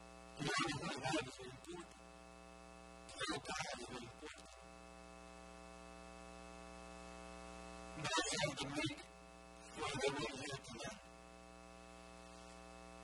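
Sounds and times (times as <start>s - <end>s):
electrical mains hum: 0.0s - 13.0s
man's voice: 3.1s - 4.4s, 8.0s - 9.0s, 9.7s - 11.0s.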